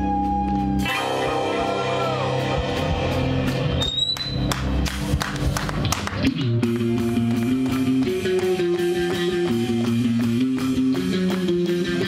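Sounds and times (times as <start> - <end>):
bass guitar: 0.0 - 12.0
electric guitar chords: 0.0 - 12.0
steady drum beat: 4.4 - 12.0.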